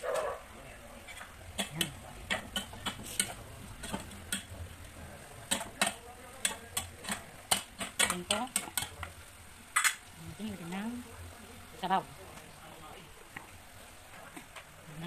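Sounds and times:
sauce bubbling and popping in pot: 1.1s - 10.2s.

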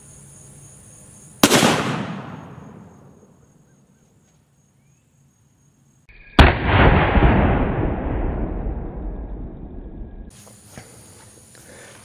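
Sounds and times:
gunshot echo: 1.4s - 3.2s, 6.4s - 9.2s
sharp gunshot report: 1.4s - 3.2s, 6.4s - 8.5s.

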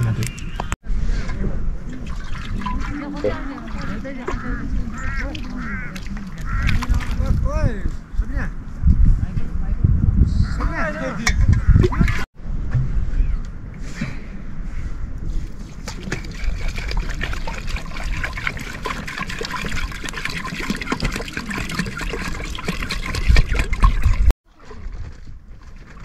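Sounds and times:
water trickling and sloshing: 1.8s - 7.5s, 15.2s - 26.0s.

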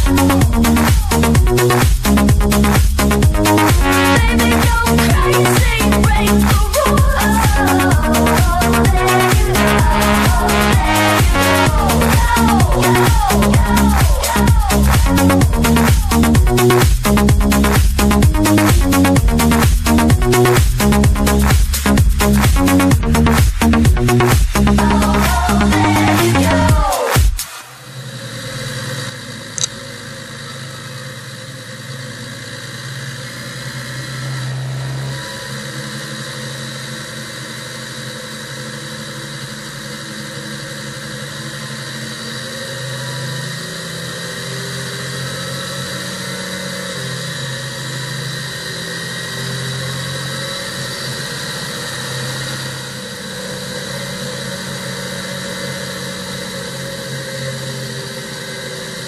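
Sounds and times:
tractor engine running: 0.0s - 27.2s, 27.9s - 59.0s
wind and road noise: 31.9s - 37.6s.

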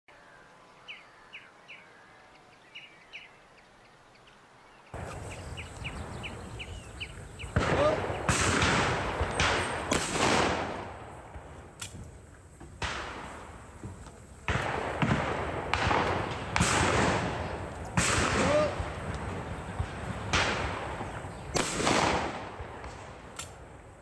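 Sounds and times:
small birds chirping: 0.1s - 10.0s, 18.6s - 21.7s
echoing shotgun shots: 5.0s - 12.1s, 12.8s - 23.9s.

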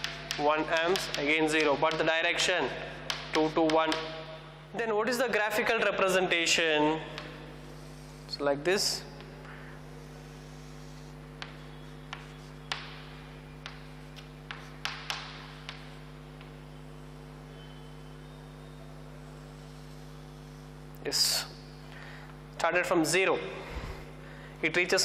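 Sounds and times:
chalk tapping and scraping on blackboard: 0.0s - 2.3s, 3.1s - 4.1s, 7.0s - 8.4s, 9.2s - 16.7s, 19.3s - 20.8s
electrical mains hum: 0.0s - 25.0s.

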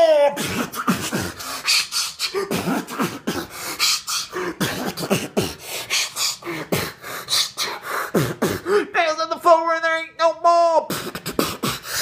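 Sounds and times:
person chanting: 0.0s - 7.0s
person beatboxing: 0.0s - 8.8s, 10.8s - 12.0s.

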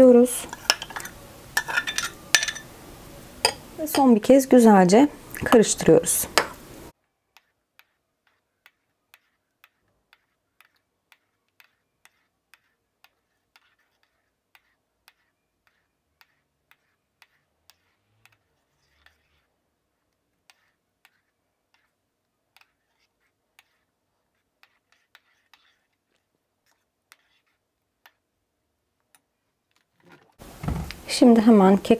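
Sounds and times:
spoon stirring thick batter: 0.1s - 31.9s
spoon clinking against bowl: 0.5s - 2.7s, 3.4s - 4.1s.

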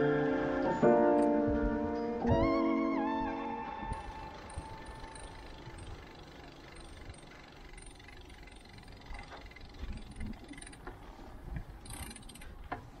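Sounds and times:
bicycle tyres rumbling: 3.8s - 13.0s
bicycle clicks and rattles: 3.9s - 13.0s.

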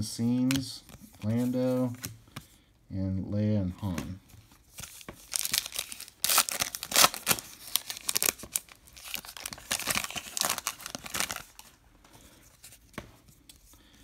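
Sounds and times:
foil wrapper crinkling and tearing: 4.9s - 11.8s.

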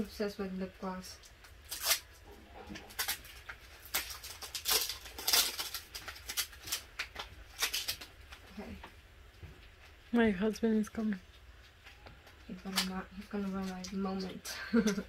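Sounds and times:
plastic packaging crinkling: 1.2s - 8.8s, 11.6s - 15.0s.

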